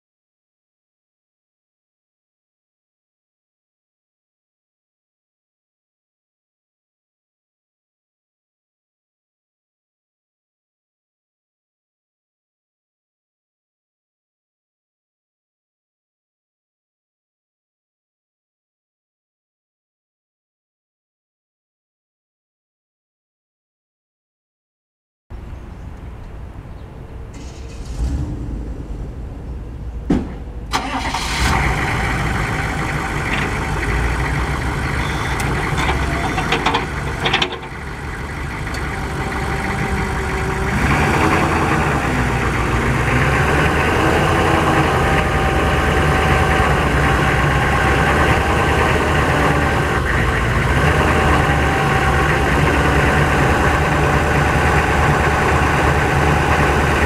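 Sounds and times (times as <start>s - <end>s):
truck engine starting and idling: 26.2s - 57.0s
hydraulic pump whine: 30.7s - 42.8s.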